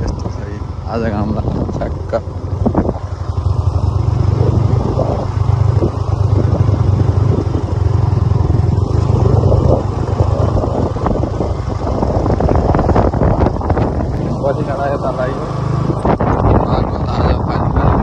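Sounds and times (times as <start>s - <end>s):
motorcycle engine running: 0.0s - 18.0s.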